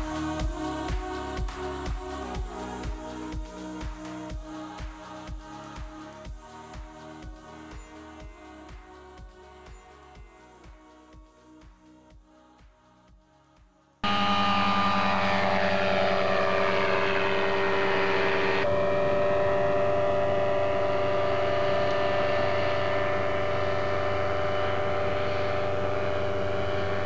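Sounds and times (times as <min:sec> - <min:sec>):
gyrocopter engine and propeller: 0:14.0 - 0:27.0.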